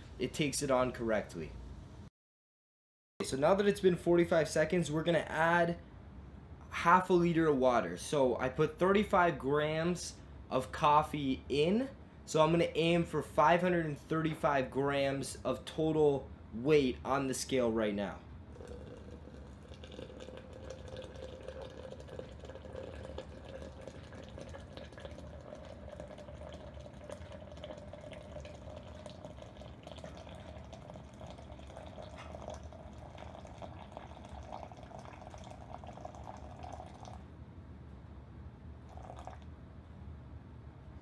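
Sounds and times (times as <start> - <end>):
hot water pouring into glass press: 18.5 - 37.2.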